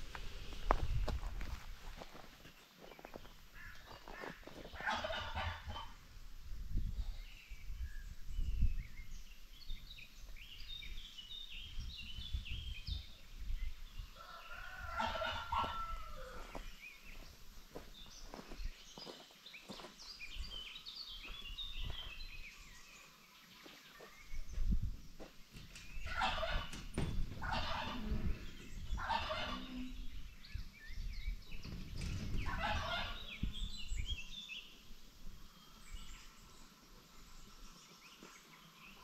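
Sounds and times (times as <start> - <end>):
chickens calling: 2.9 - 6.1, 14.0 - 39.0
rooster crowing: 14.2 - 16.6.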